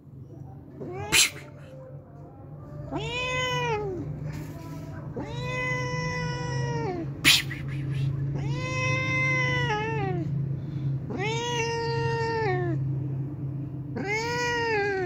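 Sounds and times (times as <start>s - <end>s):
cat meowing: 0.8s - 1.8s, 2.9s - 4.1s, 5.2s - 10.3s, 11.1s - 12.8s, 14.0s - 15.0s.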